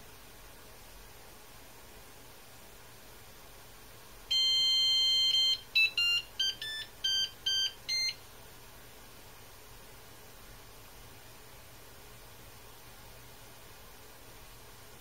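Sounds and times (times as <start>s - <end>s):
printer buzzer power-on tune: 4.3s - 8.2s.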